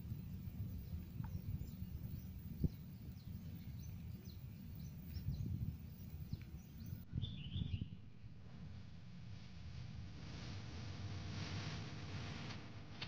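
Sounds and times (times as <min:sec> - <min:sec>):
warbling bird call: 0:00.0 - 0:07.0
faint bird chirps: 0:00.0 - 0:08.0
wind on microphone: 0:00.0 - 0:08.1.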